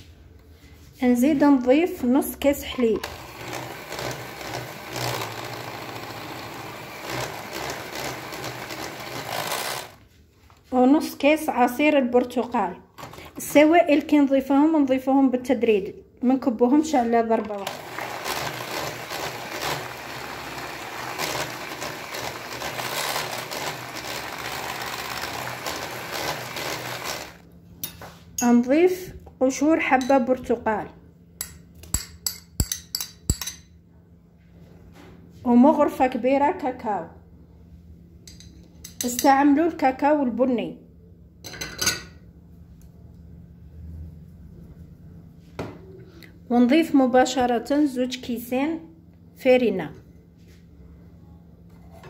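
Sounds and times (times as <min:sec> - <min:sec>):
electric hand mixer whisking: 0:03.0 - 0:10.0, 0:17.6 - 0:27.4.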